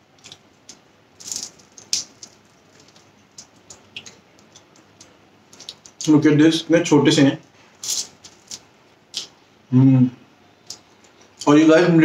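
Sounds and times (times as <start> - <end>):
spring roll crunching: 0.0 - 6.1
light crackles and ticks: 1.6 - 6.1.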